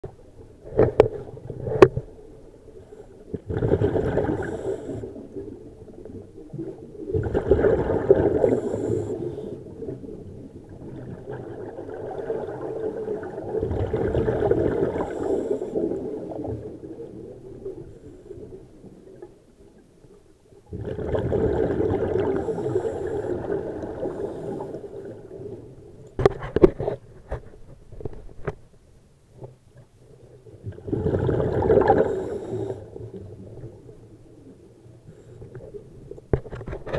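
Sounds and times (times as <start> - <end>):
underwater exhaust bubbles: 0.0 - 26.5, 29.4 - 36.9.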